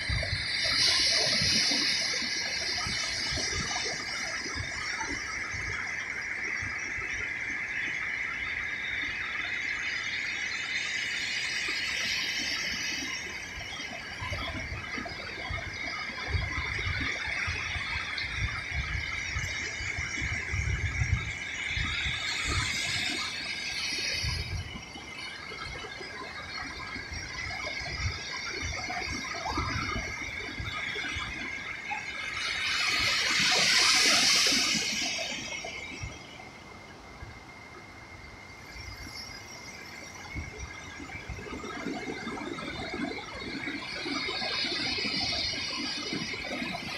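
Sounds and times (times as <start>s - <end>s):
ocean surf on a sandy beach: 0.0s - 46.9s
steady high-pitched whine: 0.0s - 46.9s.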